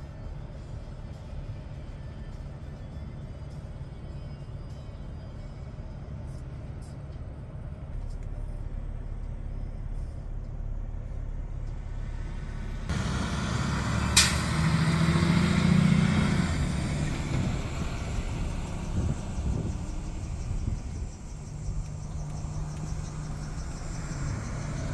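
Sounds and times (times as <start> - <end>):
garbage truck engine passing: 11.8 - 24.9.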